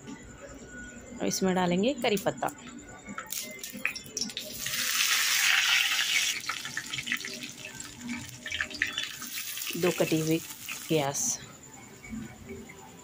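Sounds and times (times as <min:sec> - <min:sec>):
leaves sizzling in hot oil: 0:04.2 - 0:11.4.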